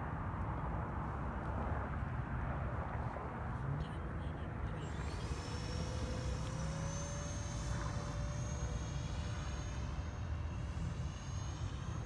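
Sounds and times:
model plane fan whining: 0:04.7 - 0:12.0.

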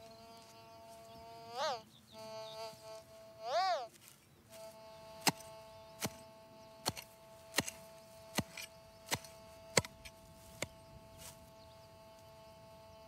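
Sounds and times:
metal detector electronic tone: 0:02.2 - 0:03.8, 0:04.5 - 0:13.0
hand pick chopping into soil: 0:05.2 - 0:11.4.

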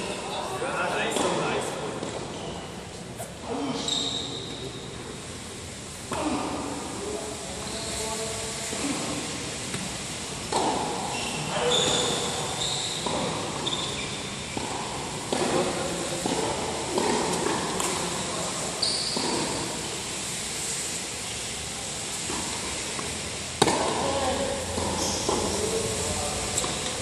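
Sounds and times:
sneakers squeaking on court: 0:02.0 - 0:04.7, 0:11.0 - 0:14.7, 0:18.8 - 0:19.5
tennis balls bouncing: 0:09.7 - 0:11.0, 0:13.0 - 0:18.0, 0:19.2 - 0:19.6, 0:22.3 - 0:24.0, 0:24.8 - 0:25.6.

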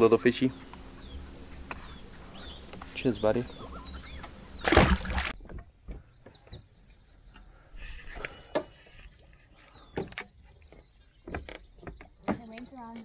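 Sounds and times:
faint bird chirps: 0:00.4 - 0:05.0.

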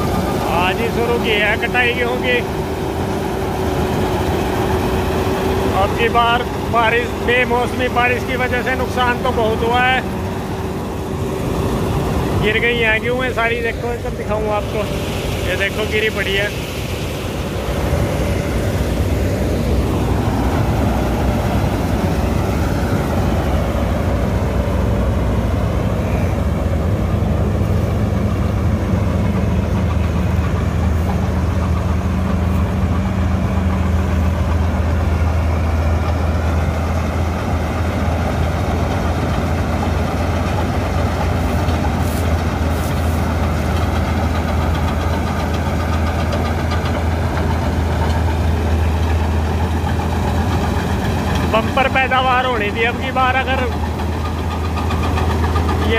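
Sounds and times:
combine harvester engine drone: 0:00.0 - 0:55.9
machine rattling: 0:27.6 - 0:55.9.

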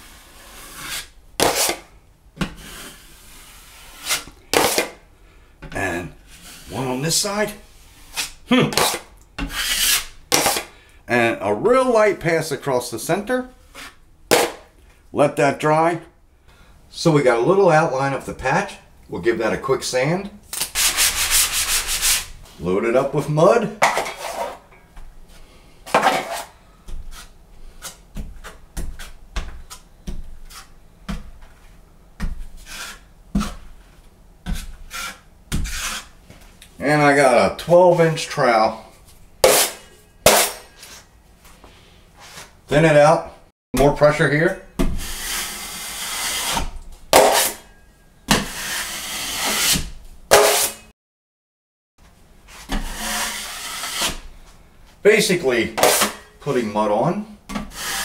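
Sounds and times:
knife spreading compound on wall: 0:00.0 - 0:05.0, 0:06.2 - 0:10.8, 0:13.6 - 0:14.7, 0:20.6 - 0:24.7, 0:25.3 - 0:36.2, 0:37.9 - 0:41.1, 0:43.8 - 0:47.7, 0:48.3 - 0:50.8, 0:52.5 - 0:54.3, 0:55.8 - 0:56.9, 0:57.5 - 0:58.0.

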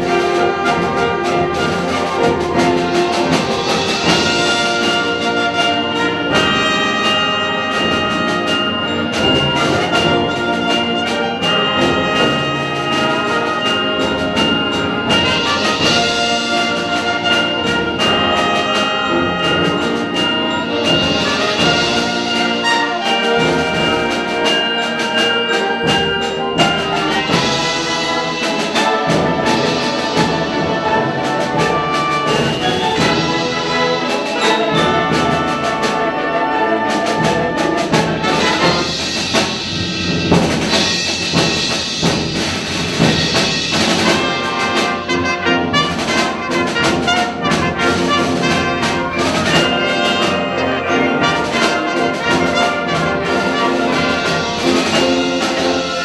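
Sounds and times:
percussion strokes: 0:00.0 - 0:56.0
wind band playing chords: 0:00.0 - 0:56.0.

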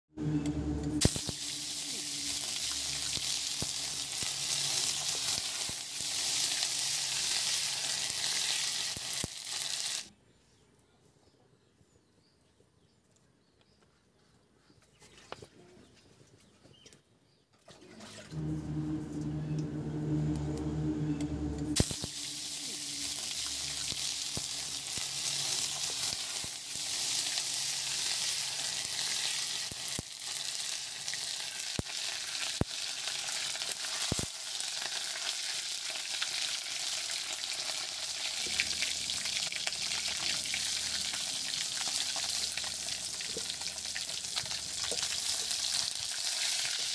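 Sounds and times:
low hum: 0:00.1 - 0:04.2, 0:18.1 - 0:25.3
fish sizzling in hot oil: 0:01.0 - 0:10.1, 0:21.8 - 0:46.9.

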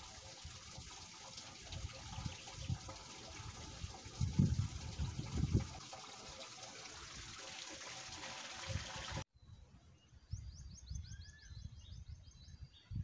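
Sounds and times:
rush of running water: 0:00.0 - 0:09.2
wind rumble on microphone: 0:01.6 - 0:05.8, 0:10.2 - 0:13.0
bird chirping: 0:09.4 - 0:13.0.

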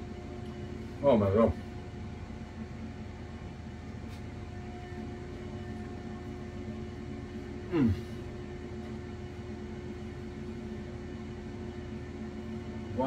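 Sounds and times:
air fryer fan hum: 0:00.0 - 0:13.0.

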